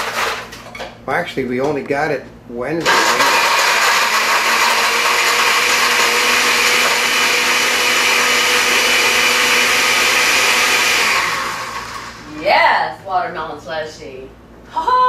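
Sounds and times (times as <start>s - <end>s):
blender running: 2.8s - 12.6s.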